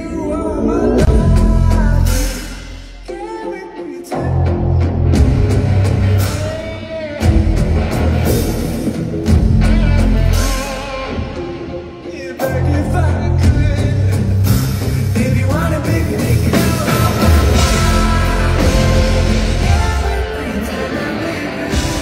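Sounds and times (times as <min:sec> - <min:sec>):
person singing: 0:00.0 - 0:05.1, 0:09.7 - 0:22.0
electric guitar: 0:00.0 - 0:22.0.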